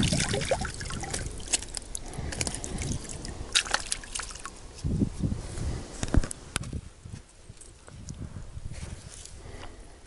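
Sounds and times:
water splash: 0.0 - 1.8, 3.0 - 4.5
water sloshing and dripping: 0.0 - 4.6.

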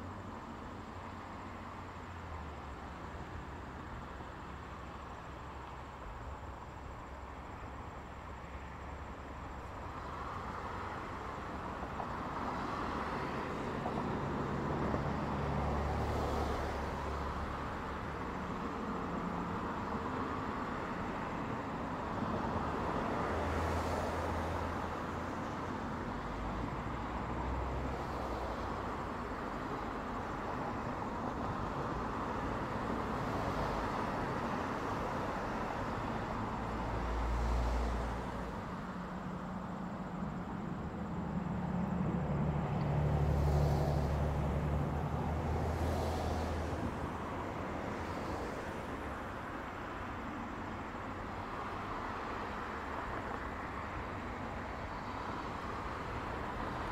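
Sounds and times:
cars passing: 0.0 - 56.9.

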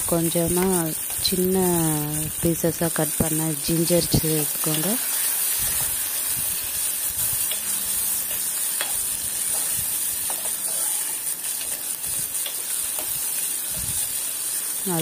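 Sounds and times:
food sizzling in hot oil: 0.0 - 15.0
metal spoon stirring in pot: 7.3 - 14.7.

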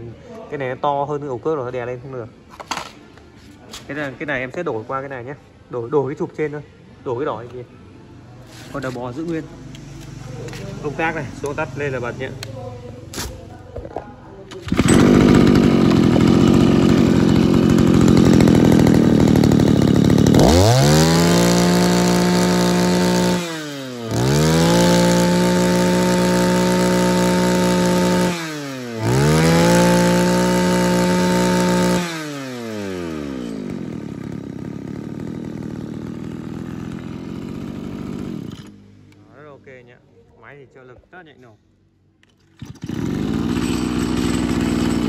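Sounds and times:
brush cutter engine revving: 8.4 - 13.5, 14.4 - 39.3, 42.4 - 45.0.

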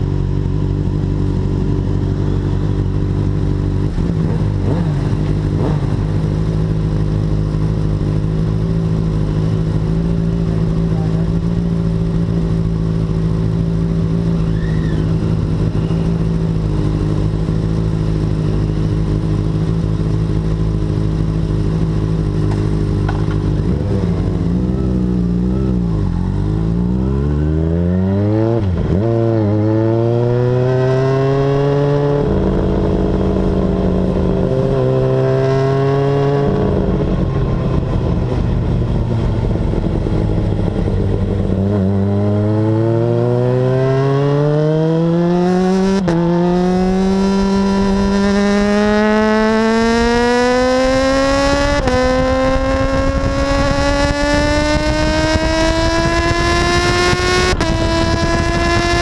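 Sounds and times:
motorcycle engine revving and accelerating: 0.0 - 59.0.

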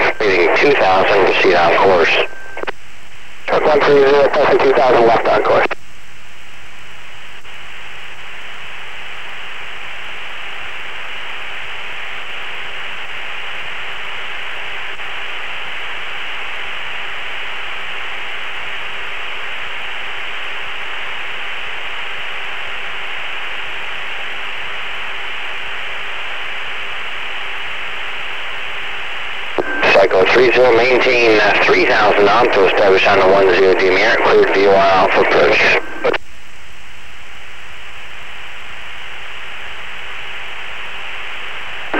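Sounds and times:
radio intercom hiss: 0.0 - 2.7, 3.4 - 5.8, 28.0 - 36.2.

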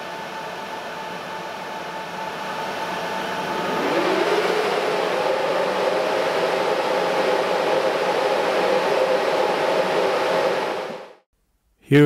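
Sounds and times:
server cooling fans whirring: 0.0 - 11.2.

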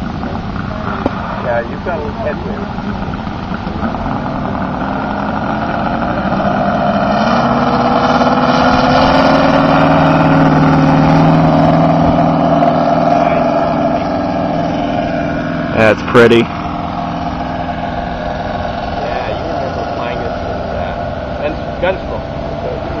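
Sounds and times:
model plane radial engine: 0.0 - 11.0, 12.8 - 23.0.

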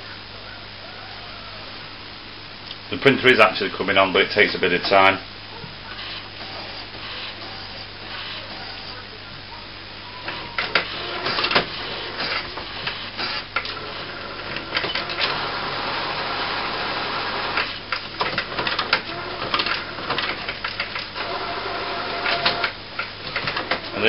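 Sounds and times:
printer motors whirring: 4.4 - 24.0
printer carriage clicking and clattering: 10.6 - 15.5, 17.5 - 21.2, 22.1 - 24.0.

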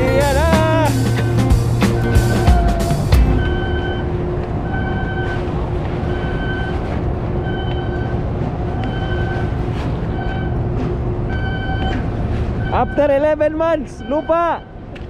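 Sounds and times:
machinery rumbling: 0.0 - 15.0
electronic warning beeper: 2.0 - 8.2, 8.8 - 9.5, 11.3 - 14.8.

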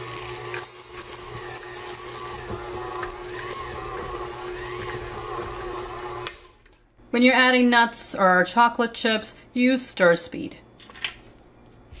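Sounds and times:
chocolate chips clattering in bowl: 0.0 - 2.4
stand mixer motor hum: 0.0 - 6.6.

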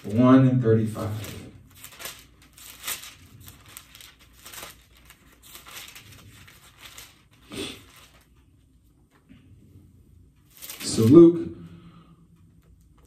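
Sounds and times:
book pages rustling: 1.0 - 9.5, 10.4 - 11.2.

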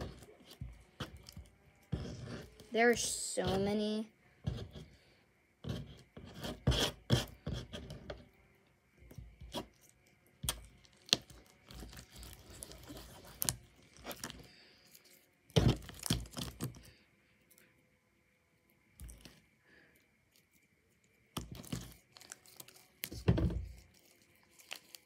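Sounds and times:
slime crackling and tearing: 9.6 - 16.8, 21.4 - 25.0.

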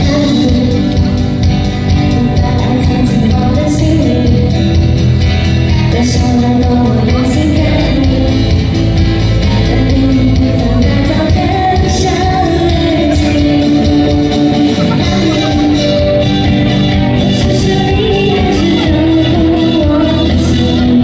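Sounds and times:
drum beat: 12.8 - 17.2
person singing long notes: 17.2 - 21.0.

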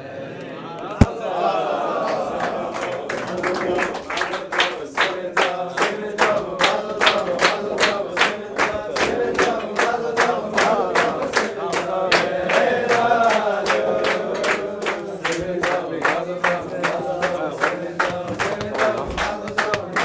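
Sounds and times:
rhythmic hand-clapping: 2.8 - 20.0
men singing together: 4.7 - 20.0.

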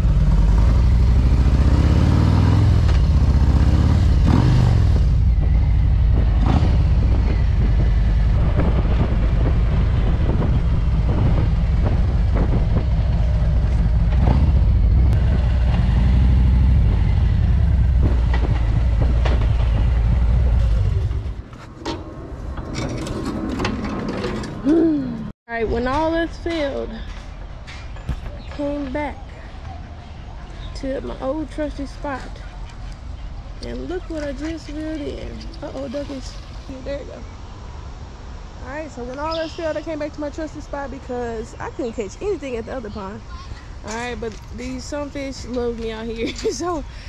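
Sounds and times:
motorcycle engine running: 0.0 - 21.4.

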